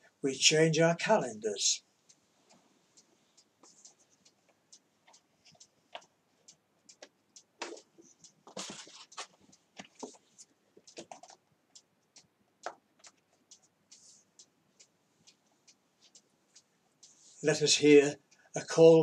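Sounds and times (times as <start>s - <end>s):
paper ticks and taps: 3.0s - 17.3s
calendar page rustling: 7.6s - 11.4s.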